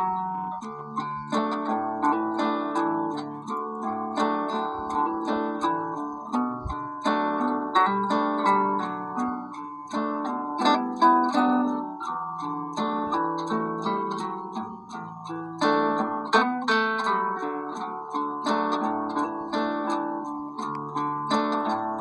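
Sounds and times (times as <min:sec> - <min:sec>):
plucked-string instrumental music: 0:00.0 - 0:22.0.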